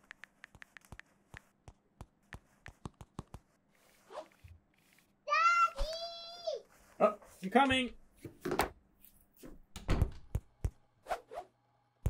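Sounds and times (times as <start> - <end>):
stylus tapping on screen: 0.0 - 3.5.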